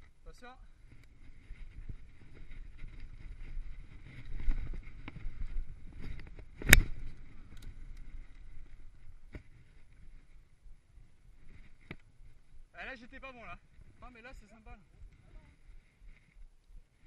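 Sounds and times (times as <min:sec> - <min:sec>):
bike tyre rumble on dirt: 0:00.0 - 0:12.8.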